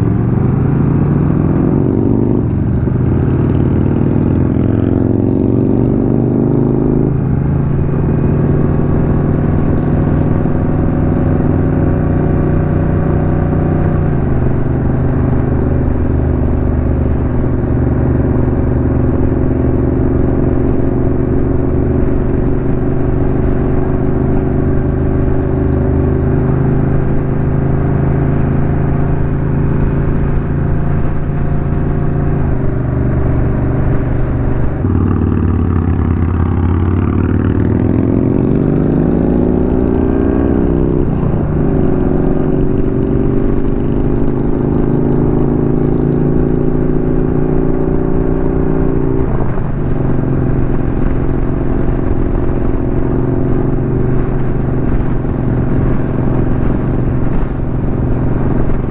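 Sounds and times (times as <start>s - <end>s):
motorcycle engine accelerating: 0.0s - 58.9s.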